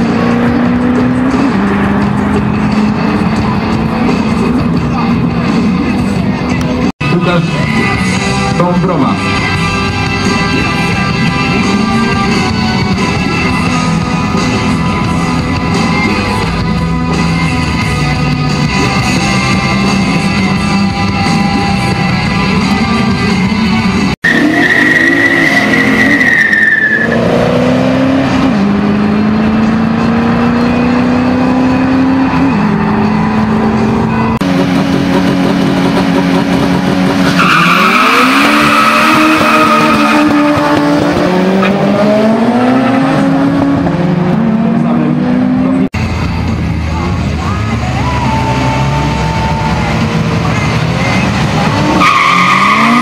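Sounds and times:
car engines accelerating hard: 0.0 - 53.0
rock music: 0.0 - 53.0
tyre squeal: 24.2 - 27.3, 37.2 - 40.5.

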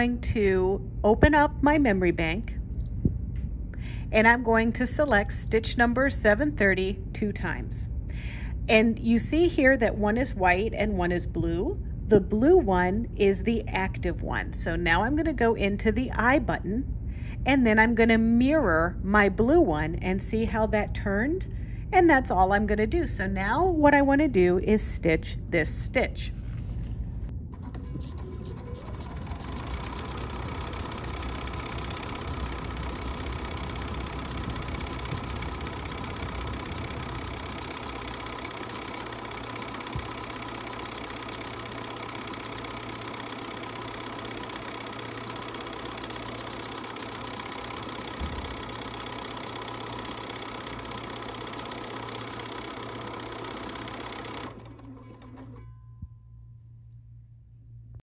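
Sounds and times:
sewing machine stitching: 27.6 - 55.7.

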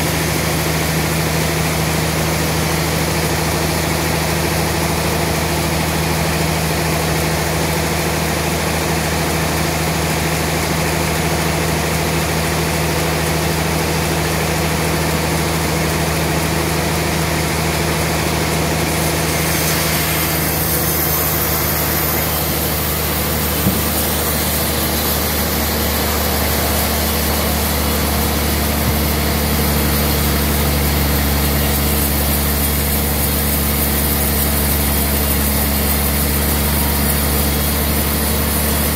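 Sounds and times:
motor hum: 17.2 - 34.2
saw blade hiss: 18.4 - 37.9.

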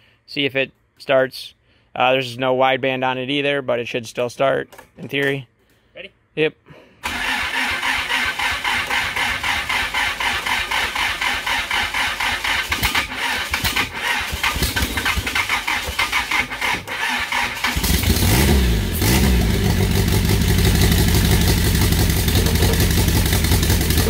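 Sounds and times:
starter cranking engine: 7.0 - 24.0
engine revving and idling: 7.8 - 24.0.

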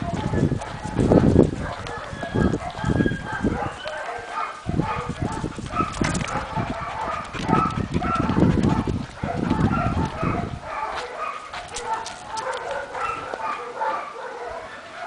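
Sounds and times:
handheld camera thumps and rustle: 4.7 - 13.4.

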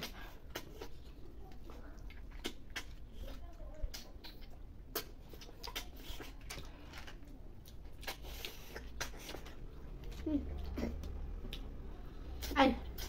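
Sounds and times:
small mouth sounds: 0.0 - 13.0.

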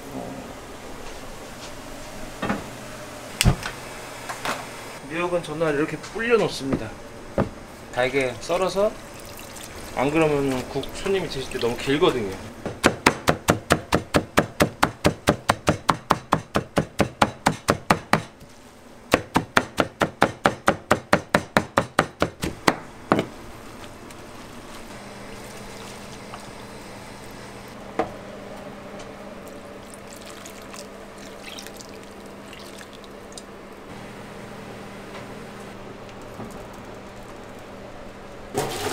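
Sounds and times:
low kitchen hum: 0.0 - 38.9
knife chopping on cutting board: 12.7 - 18.3.

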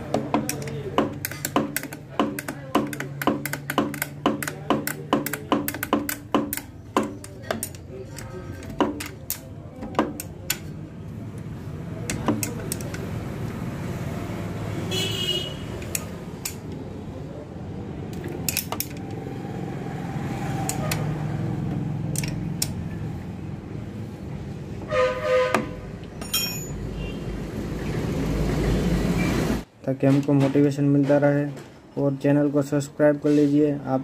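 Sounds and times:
spanner clinking on metal: 0.4 - 10.7, 18.2 - 19.1, 22.1 - 22.8, 26.0 - 26.9
vehicle horn: 14.8 - 15.8, 24.8 - 25.9, 26.9 - 27.3.

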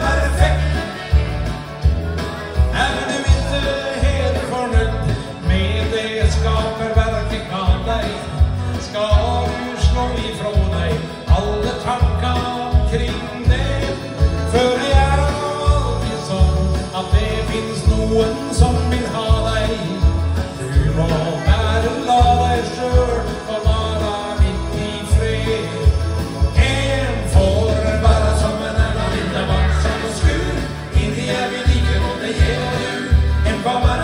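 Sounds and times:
man singing into a microphone: 0.0 - 1.9, 2.7 - 34.0
backing track with deep beat: 0.0 - 34.0.

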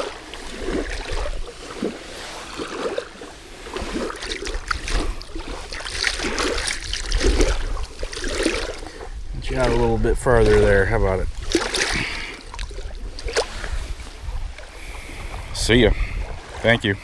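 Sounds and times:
water splashing and lapping: 0.0 - 17.0.

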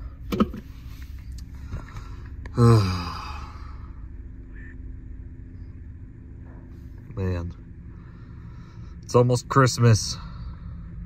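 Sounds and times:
low hum in car cabin: 0.0 - 11.0
man sighing: 2.0 - 4.0.

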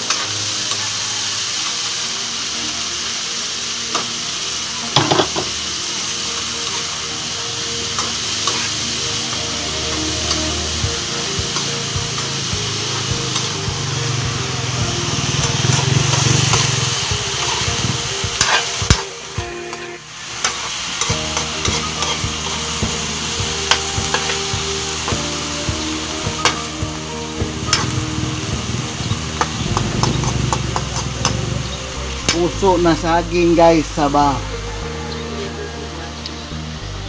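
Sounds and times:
food sizzling in a wok: 0.0 - 37.0
metal spatula scraping a pan: 7.8 - 10.7, 15.4 - 19.1, 19.7 - 25.2.

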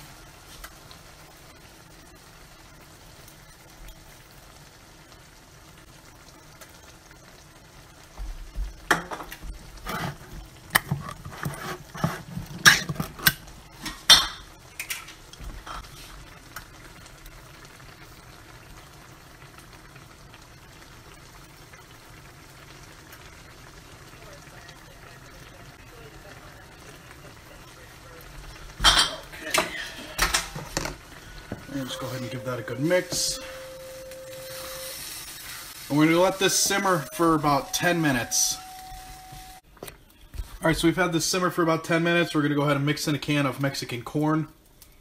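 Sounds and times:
meat sizzling in a pan: 0.0 - 39.6
kitchenware clinking and clattering: 8.9 - 15.9, 28.7 - 33.8.

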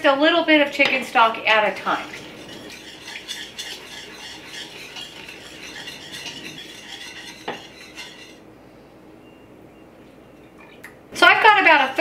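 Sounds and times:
whisk scraping metal pot: 0.7 - 8.4.

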